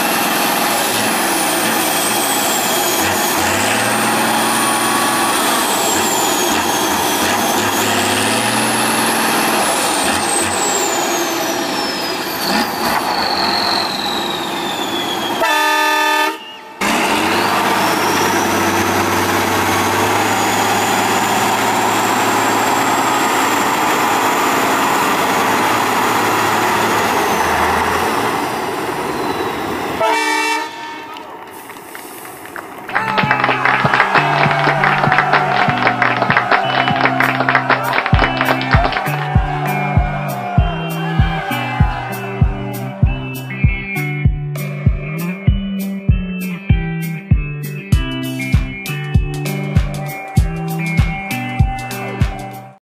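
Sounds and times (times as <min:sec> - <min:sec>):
truck diesel engine working hard: 0:00.0 - 0:31.0, 0:32.0 - 0:45.2
horn blast: 0:15.2 - 0:28.2, 0:30.0 - 0:31.3, 0:33.0 - 0:43.5.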